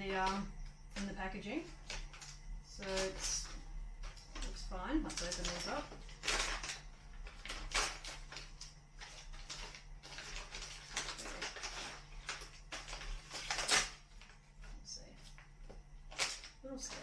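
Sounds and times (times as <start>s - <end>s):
loud packaging crackles: 4.1s - 14.5s, 16.0s - 17.0s.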